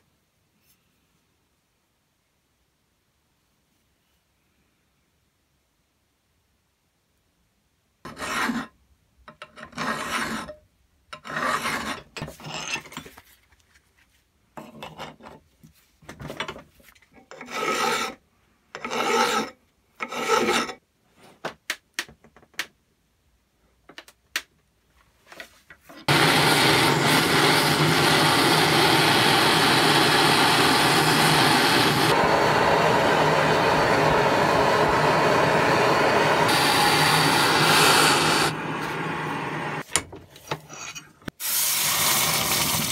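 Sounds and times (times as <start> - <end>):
metal scraping on metal: 8.1 - 10.6, 11.2 - 13.2, 17.2 - 18.2
blowtorches hissing: 26.1 - 39.8, 41.4 - 42.9.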